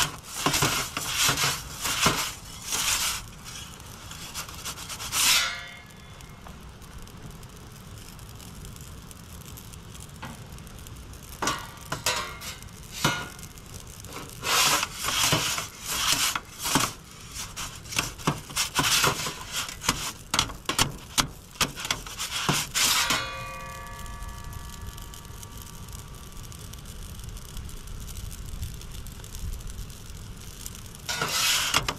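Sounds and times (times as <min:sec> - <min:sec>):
metal pizza peel scraping stone: 0:00.0 - 0:05.8, 0:11.5 - 0:13.5, 0:14.1 - 0:23.8, 0:31.1 - 0:31.9.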